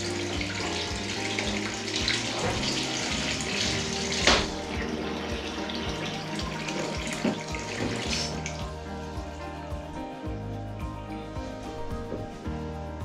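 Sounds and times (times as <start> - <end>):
bath water draining: 0.0 - 8.7
soft background music: 0.0 - 13.0.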